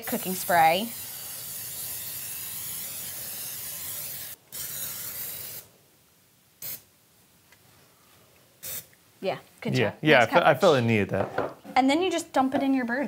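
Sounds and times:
aerosol spray hissing: 0:00.0 - 0:05.7, 0:06.6 - 0:06.9, 0:08.6 - 0:08.9.

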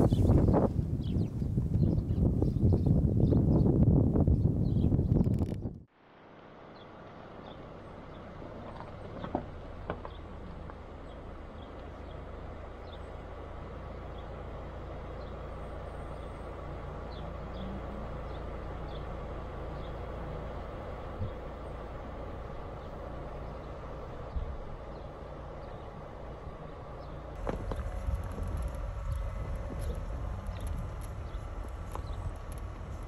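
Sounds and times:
car rolling on gravel: 0:06.8 - 0:33.0.

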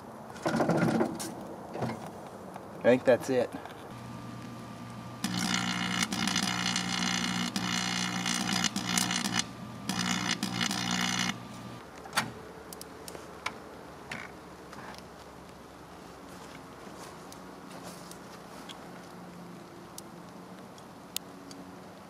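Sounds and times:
electrical arcing crackling and buzzing: 0:03.9 - 0:11.8
microwave oven hum: 0:03.9 - 0:11.8
sharp clicks: 0:03.9 - 0:12.0.

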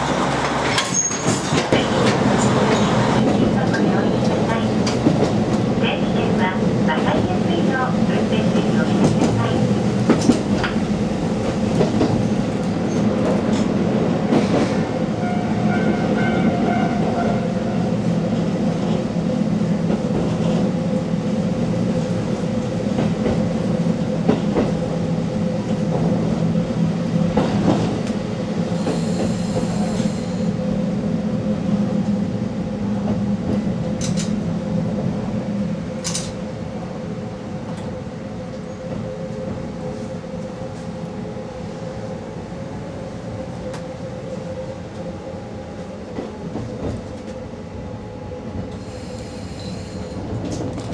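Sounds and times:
diesel railcar engine droning: 0:00.0 - 0:12.6, 0:23.8 - 0:50.9.

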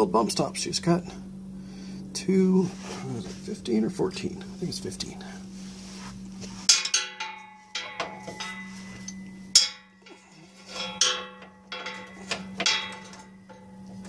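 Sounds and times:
metallic knocks ringing: 0:06.7 - 0:14.0.

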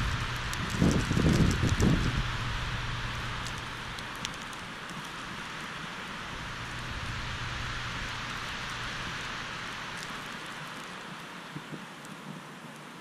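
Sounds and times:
faint low hum: 0:00.0 - 0:13.0
wind and blowing snow hissing: 0:00.0 - 0:13.0
faint ticks: 0:03.2 - 0:05.4, 0:09.9 - 0:13.0.

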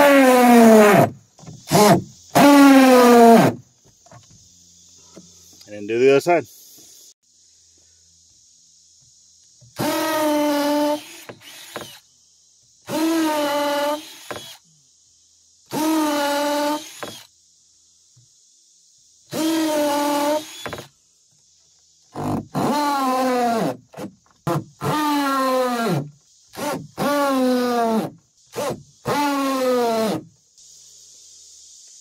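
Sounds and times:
cordless drill drilling into wood: 0:00.0 - 0:03.6, 0:09.8 - 0:12.0, 0:12.8 - 0:14.6, 0:15.7 - 0:17.3, 0:19.3 - 0:20.9, 0:22.1 - 0:30.2
insects chirring: 0:00.0 - 0:32.0.

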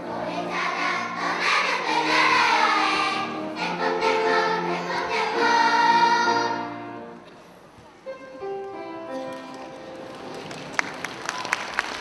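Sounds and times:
children's choir singing: 0:00.0 - 0:07.1
grand piano: 0:00.0 - 0:12.0.

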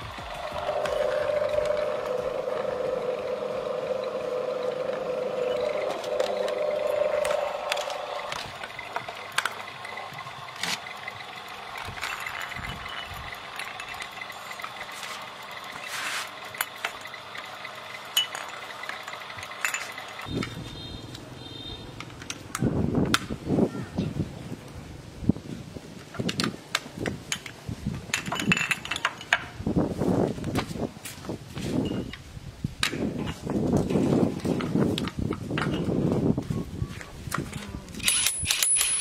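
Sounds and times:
electric motor hum and whine: 0:00.0 - 0:23.4.

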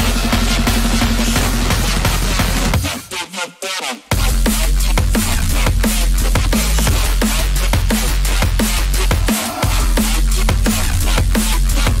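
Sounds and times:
sustained bass line: 0:00.0 - 0:02.9, 0:04.1 - 0:12.0
electronic music: 0:00.0 - 0:12.0
deep kick drums: 0:04.1 - 0:12.0.

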